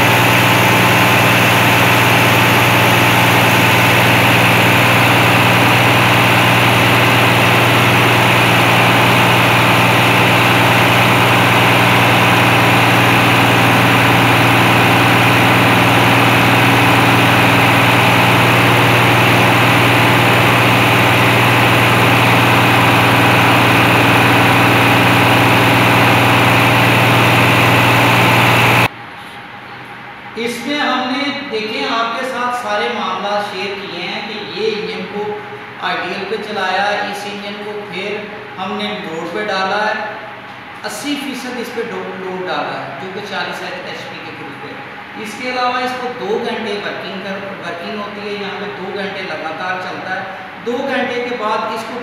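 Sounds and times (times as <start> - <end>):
engine running with low hum: 0.0 - 30.5
person talking: 30.4 - 40.1, 40.8 - 52.0.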